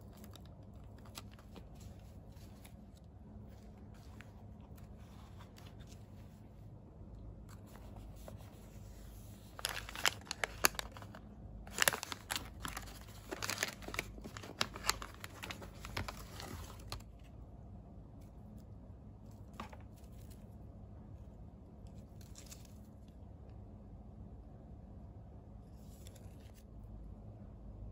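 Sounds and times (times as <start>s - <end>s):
plastic and paper wrapping crackling: 0.0s - 6.3s, 7.6s - 17.3s
soft handling rustles: 0.0s - 17.3s, 18.2s - 20.7s.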